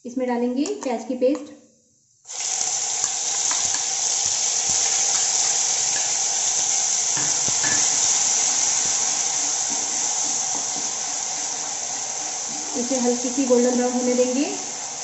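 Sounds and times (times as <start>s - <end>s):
onion paste sizzling in oil: 2.2s - 15.0s
spatula knocking pan: 7.1s - 8.2s.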